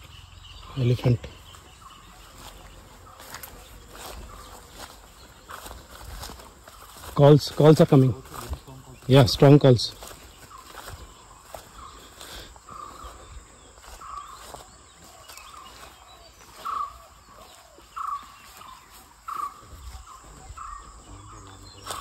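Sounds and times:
animal alarm calls: 15.5s - 22.0s.

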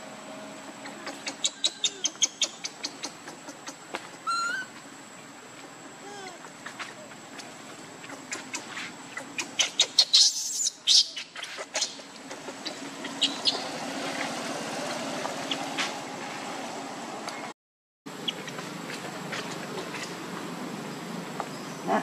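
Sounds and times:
steady low hum: 0.0s - 17.5s.

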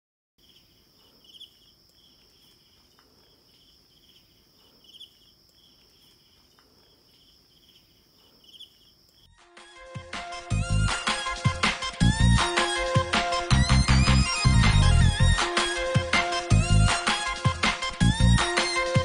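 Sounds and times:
insects buzzing and chirping: 0.4s - 9.4s.

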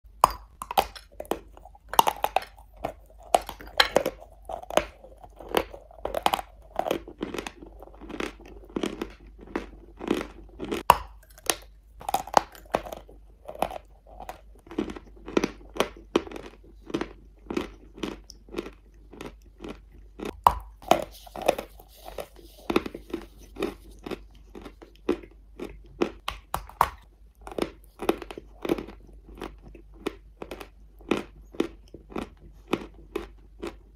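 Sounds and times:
chalk being chewed: 0.8s - 26.2s.

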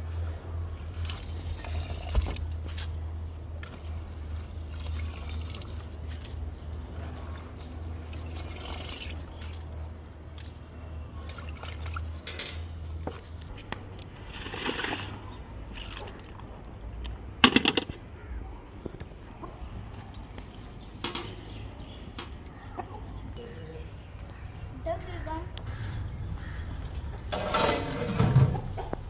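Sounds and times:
hands sloshing rice in water: 14.2s - 16.4s.

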